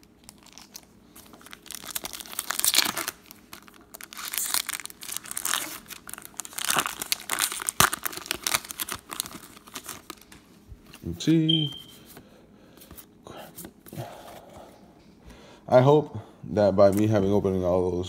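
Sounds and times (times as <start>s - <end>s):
foil wrapper tearing and crinkling: 0.0s - 10.4s.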